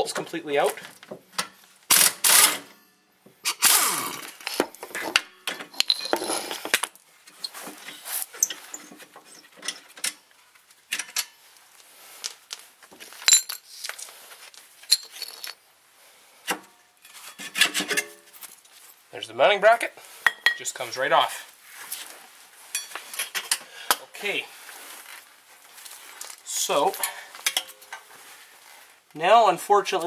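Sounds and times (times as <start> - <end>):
metal scraping: 4.9 - 6.8
metallic clinks of tools and bolts: 5.4 - 6.8, 13.2 - 14.1, 14.8 - 15.6, 26.8 - 28.0.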